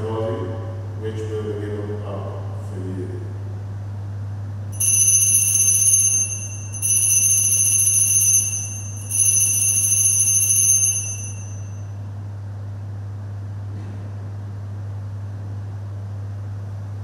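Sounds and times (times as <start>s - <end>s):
steady low hum: 0.0s - 17.0s
altar bells jingling: 4.8s - 11.8s.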